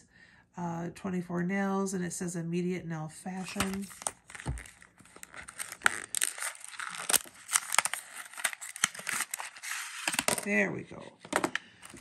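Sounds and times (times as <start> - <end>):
paperboard box flap crinkling: 3.4 - 10.5.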